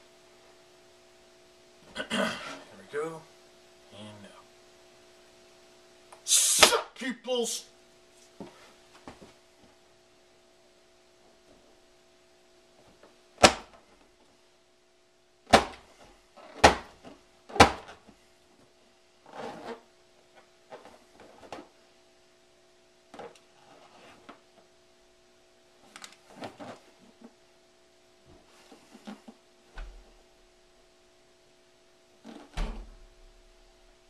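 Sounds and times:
faint steady hum: 0.0s - 34.0s
hands smacking a rubber balloon: 13.4s - 13.8s, 15.5s - 16.0s, 16.6s - 18.0s.

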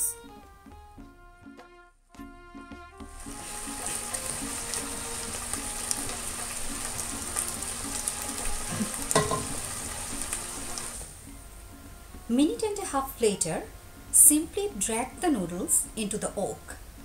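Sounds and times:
food sizzling and crackling: 3.0s - 11.2s
spoon knocking metal pot: 9.1s - 9.8s.

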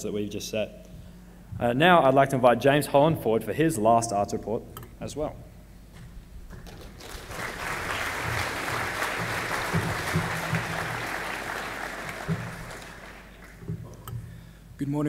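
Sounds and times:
audience applauding: 6.5s - 13.7s.

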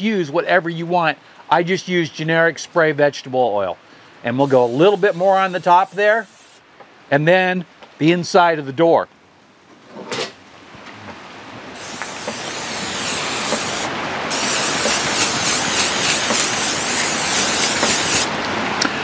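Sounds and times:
aerosol can spraying: 4.4s - 6.6s, 11.8s - 18.3s.

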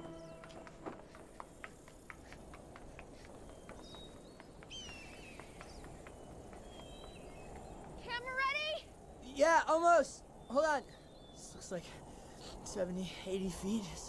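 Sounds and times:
footsteps on metal stairs: 0.0s - 8.0s
bird chirps: 0.0s - 9.2s, 10.0s - 12.5s
outdoor hiss: 0.0s - 14.0s.

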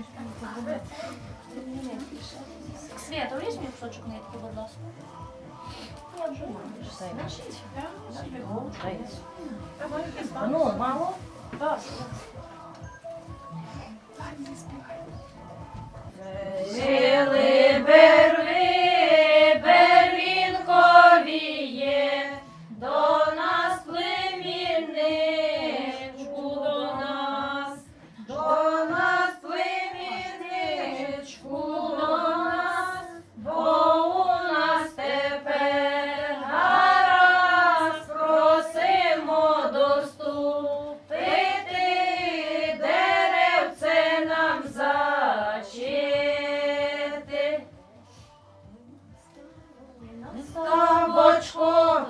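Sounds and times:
women singing unaccompanied: 13.4s - 52.0s.

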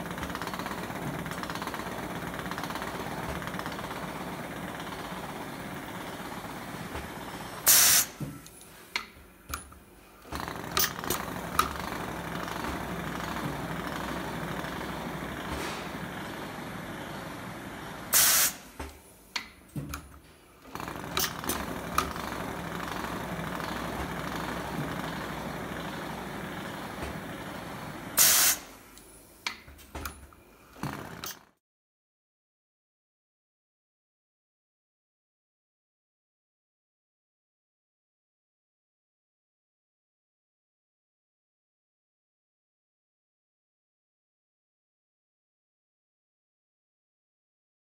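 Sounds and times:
short loud air hiss: 7.6s - 8.2s, 18.1s - 18.7s, 28.2s - 28.8s.

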